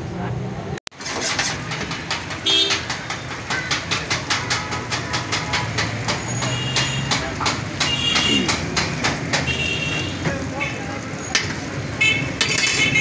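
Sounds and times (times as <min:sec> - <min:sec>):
street noise: 0:00.0 - 0:13.0
frying sizzle: 0:00.9 - 0:13.0
metal utensils clattering on griddle: 0:01.0 - 0:09.6, 0:11.2 - 0:13.0.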